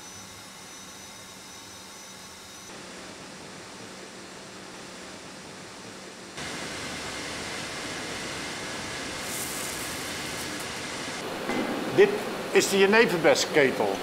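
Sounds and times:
bright hiss: 6.4s - 11.2s.

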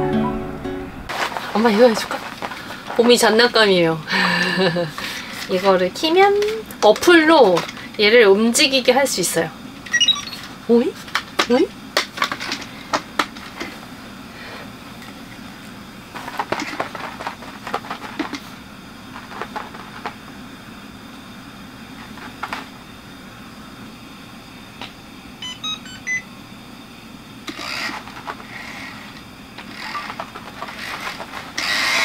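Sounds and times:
steady low hum: 0.0s - 32.0s
electronic beeps: 9.9s - 10.5s, 25.4s - 26.2s
robot toy rolling with clicks: 27.5s - 32.0s.

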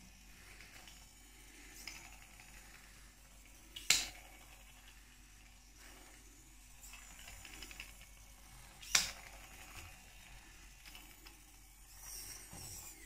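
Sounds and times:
small motors whirring and clattering: 0.0s - 13.0s.

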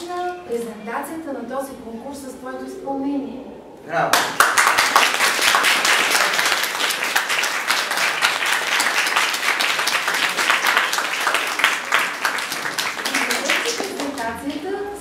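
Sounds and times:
audience applauding: 4.2s - 14.6s.

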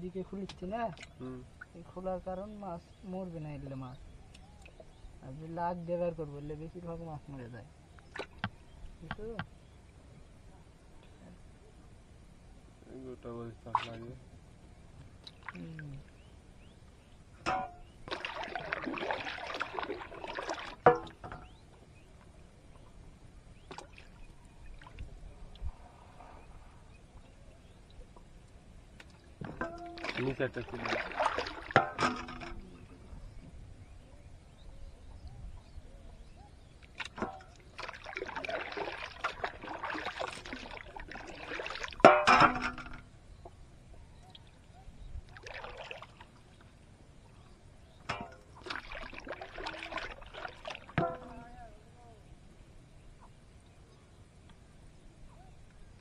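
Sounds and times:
water splashing and swishing: 6.8s - 10.4s, 13.6s - 14.2s, 15.1s - 33.3s, 36.7s - 43.1s, 44.2s - 52.2s
net shaken in water: 18.1s - 20.8s, 29.9s - 31.8s, 37.7s - 42.0s, 48.6s - 51.0s.

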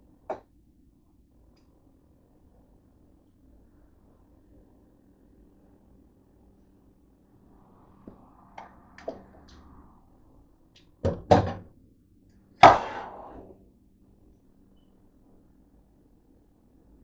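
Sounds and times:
sharp knocks: 12.6s - 13.3s.

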